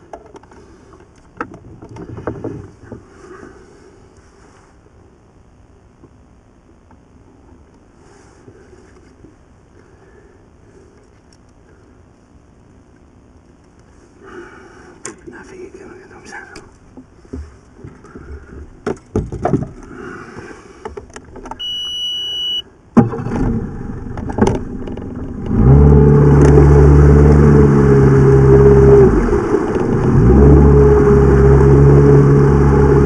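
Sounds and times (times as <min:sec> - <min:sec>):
short beep: 0:21.6 - 0:22.7
outboard motor running: 0:23.0 - 0:33.0.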